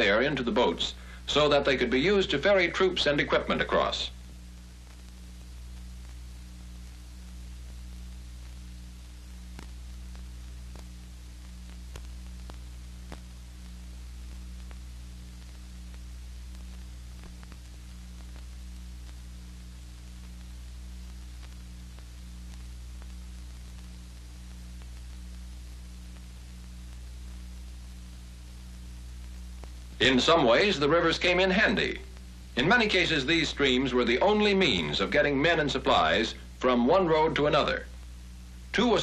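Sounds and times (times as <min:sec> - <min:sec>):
film soundtrack hum and hiss: 0:00.0 - 0:39.0
faint clicks: 0:09.5 - 0:13.4, 0:19.9 - 0:30.0.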